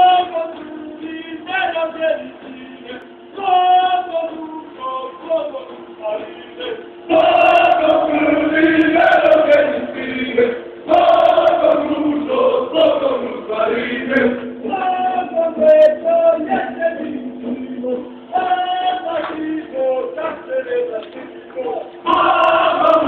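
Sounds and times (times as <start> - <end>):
low vocal drone: 4.9 - 23.0
church choir chanting: 7.1 - 14.4, 22.1 - 23.0.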